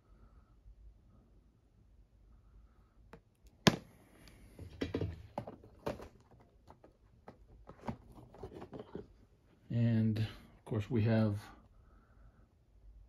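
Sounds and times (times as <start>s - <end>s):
boxes tapping and clicking: 4.6s - 9.1s.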